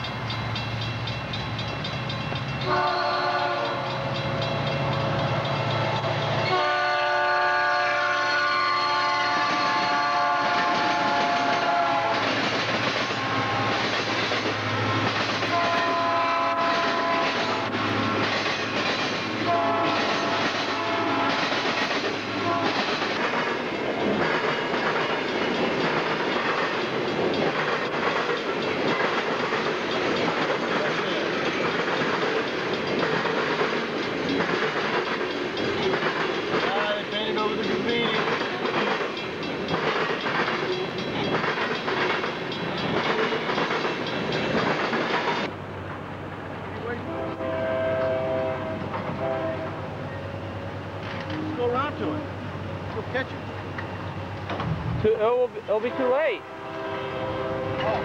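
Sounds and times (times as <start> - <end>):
train wheels clickety-clack: 0.0 - 47.0, 48.0 - 49.6, 51.0 - 52.2, 52.8 - 56.4
low locomotive engine hum: 0.0 - 58.0
train horn blasts: 2.6 - 12.3, 13.1 - 13.9, 15.5 - 18.3, 19.4 - 21.6, 22.4 - 22.9, 47.0 - 49.9, 55.8 - 58.0.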